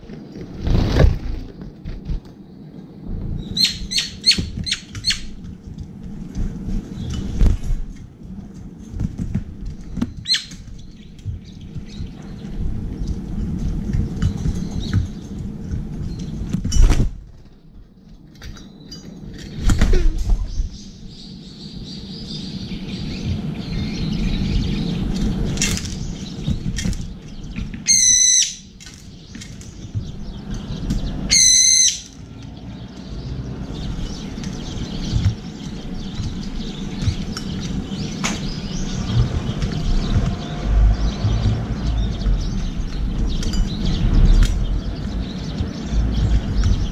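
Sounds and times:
wing flaps: 0:00.0 - 0:02.4, 0:04.2 - 0:17.7
bird giving shrill calls: 0:27.9 - 0:28.7, 0:31.3 - 0:32.1.

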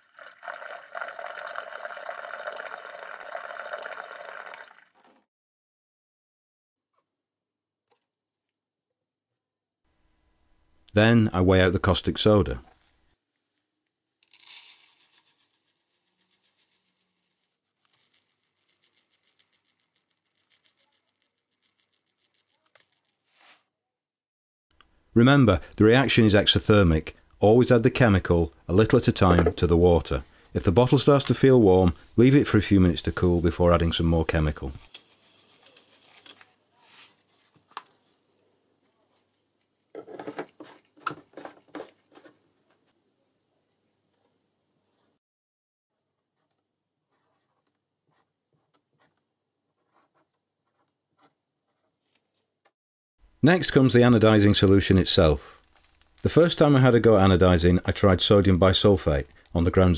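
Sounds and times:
liquid trickling through a funnel: 0:00.0 - 0:05.2
granules trickling into plastic cup: 0:14.2 - 0:23.4, 0:32.8 - 0:37.0
plastic knocks and scrapes: 0:39.9 - 0:42.4.

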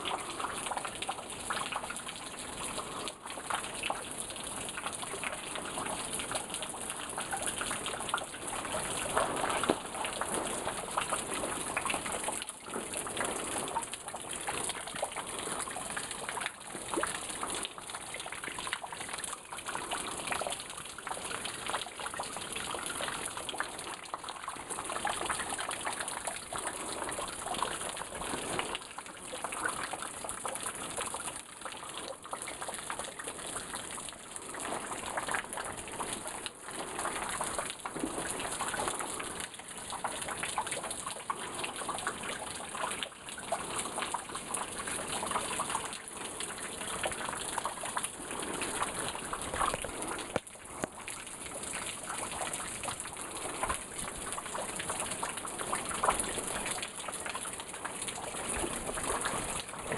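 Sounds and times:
water splashing over rock: 0:04.7 - 0:59.9.

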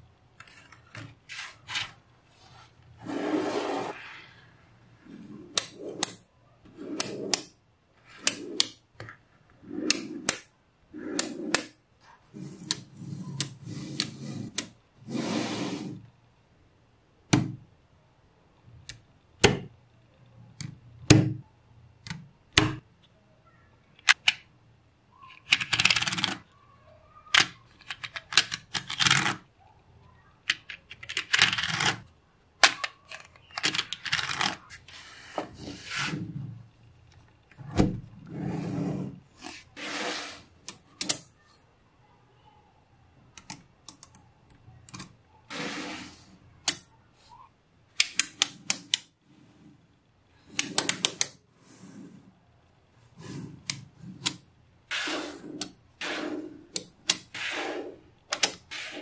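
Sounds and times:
magnetic balls scraping: 0:05.0 - 0:08.8, 0:09.6 - 0:16.1, 0:53.0 - 0:59.0.

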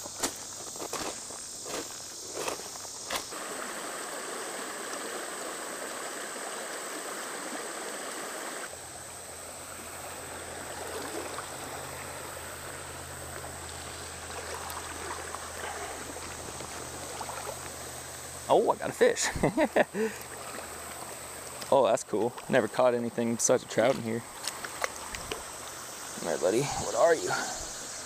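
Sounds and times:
footsteps crunching on gravel: 0:00.0 - 0:03.3
creek water over rocks: 0:00.5 - 0:28.0.

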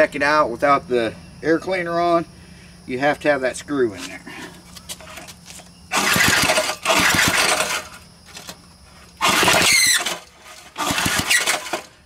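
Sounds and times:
engine turning over without catching: 0:05.9 - 0:12.0
recoil starter pulls: 0:05.9 - 0:12.0.

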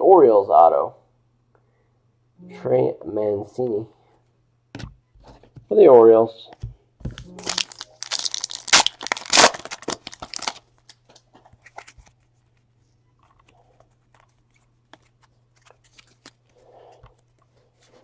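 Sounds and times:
card pack wrapper crinkling: 0:07.1 - 0:12.2, 0:14.0 - 0:16.5.

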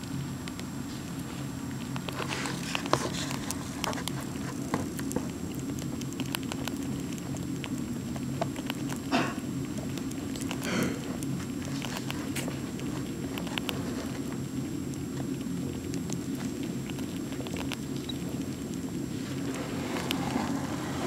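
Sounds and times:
rats chewing nuts: 0:00.0 - 0:21.0
steady low hum: 0:00.0 - 0:21.0.

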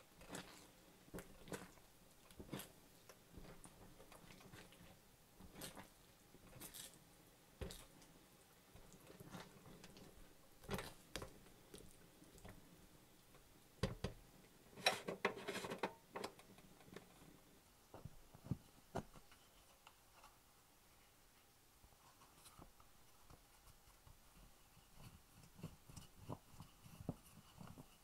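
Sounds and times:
spatula stirring thick filling: 0:00.0 - 0:14.8, 0:22.1 - 0:28.0.

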